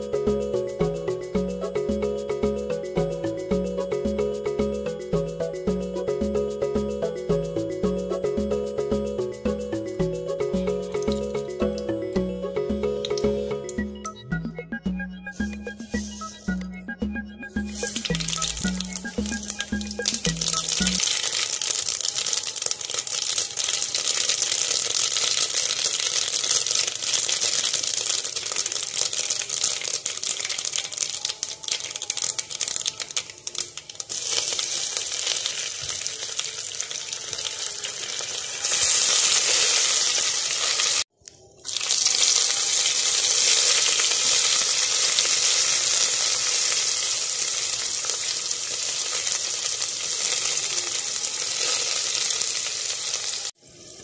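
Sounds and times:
seeds popping in hot oil: 10.9s - 11.9s, 17.6s - 41.0s, 41.6s - 54.0s
vegetables sizzling in oil: 17.6s - 54.0s.

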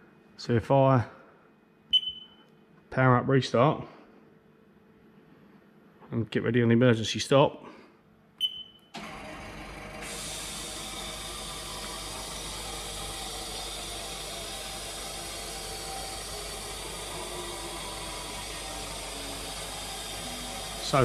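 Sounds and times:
short beep: 1.9s - 2.5s, 8.4s - 8.9s
machine running with hiss and hum: 9.7s - 21.0s.

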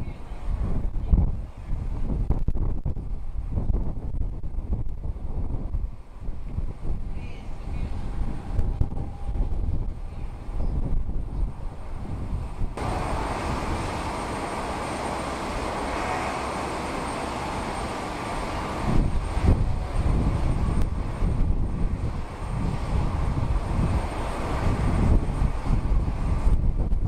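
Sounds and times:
jet aircraft engine noise: 0.0s - 27.0s
wind buffeting microphone: 0.0s - 27.0s
faint high whine: 12.8s - 26.6s.

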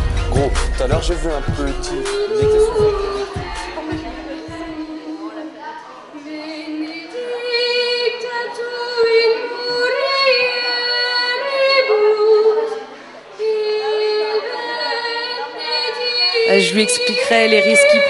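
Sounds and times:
child singing: 13.4s - 18.0s.

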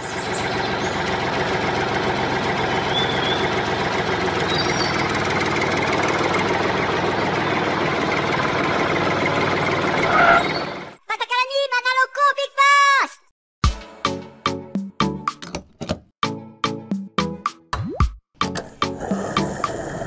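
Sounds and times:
diesel tractor engine running: 0.0s - 11.0s.

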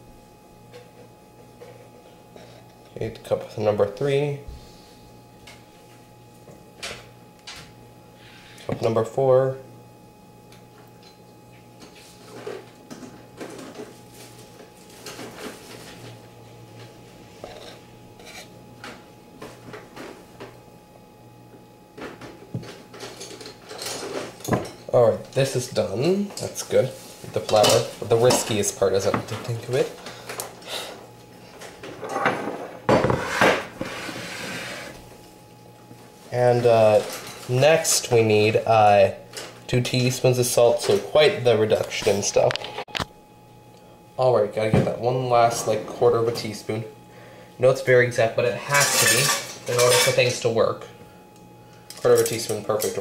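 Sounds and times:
knife scraping cup level: 17.4s - 18.5s.

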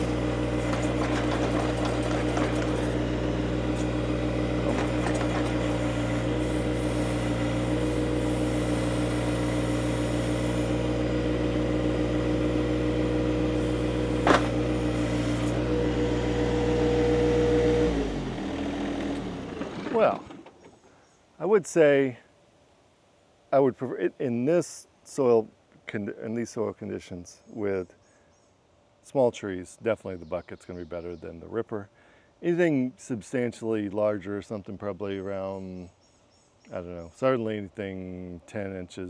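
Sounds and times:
tractor diesel engine running: 0.0s - 20.6s.

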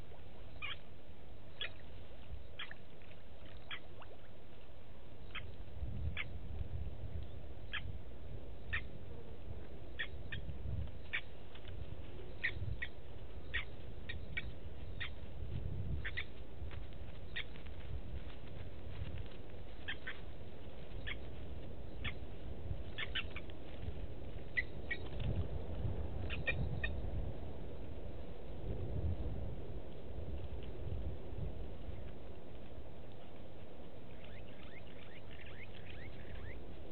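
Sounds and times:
steady low rumble: 0.0s - 36.9s
lapwing metallic tink calls: 0.5s - 0.8s, 1.5s - 1.9s, 3.4s - 4.2s, 12.4s - 15.2s, 16.0s - 16.3s, 22.9s - 23.4s, 34.1s - 36.6s.

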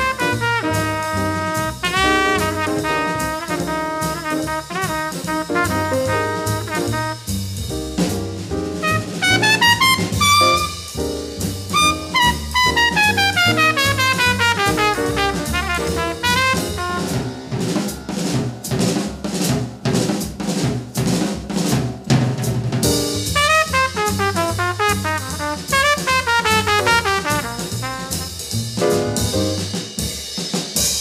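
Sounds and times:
jazz band playing: 0.0s - 30.1s
drum kit solo: 0.0s - 31.0s
tenor saxophone fast runs: 8.9s - 10.8s, 11.7s - 14.4s.

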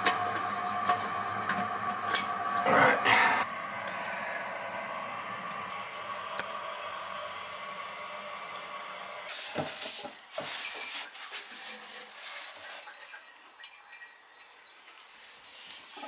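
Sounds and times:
water hissing through fill valve: 0.0s - 11.0s.

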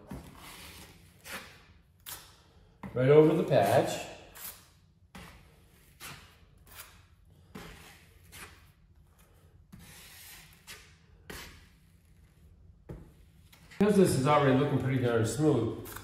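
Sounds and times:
taping knife scraping compound: 0.2s - 2.6s, 3.2s - 8.7s, 9.7s - 12.3s, 15.7s - 16.0s.

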